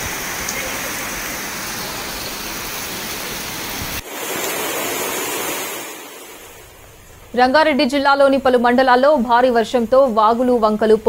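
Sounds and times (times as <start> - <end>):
rushing floodwater: 0.0 - 6.8
heavy rain: 0.0 - 8.5.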